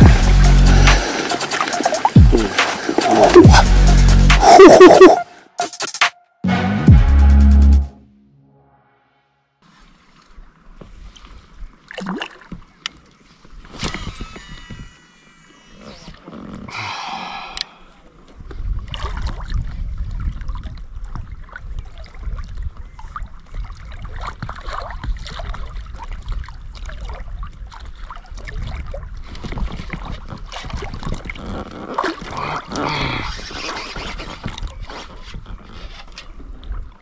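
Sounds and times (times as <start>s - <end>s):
water lapping against boat: 0.0s - 5.2s, 9.6s - 37.0s
wind on microphone: 18.4s - 27.7s.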